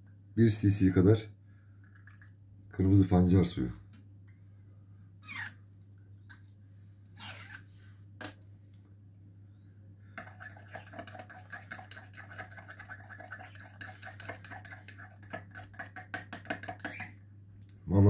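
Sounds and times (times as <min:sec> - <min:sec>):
spoon scraping in plastic cup: 0:10.2 - 0:17.2.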